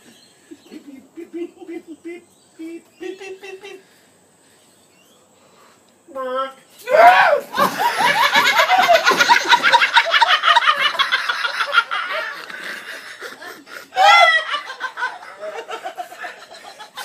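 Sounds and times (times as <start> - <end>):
person laughing hard: 0.5 - 3.8, 7.5 - 17.0
squealing whoop: 6.8 - 7.6, 14.0 - 14.5.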